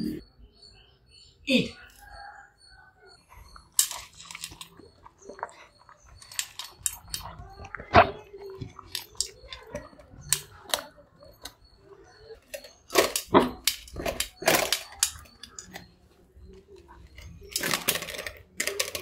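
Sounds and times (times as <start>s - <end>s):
puppy eating from a steel bowl: 3.1s - 19.0s.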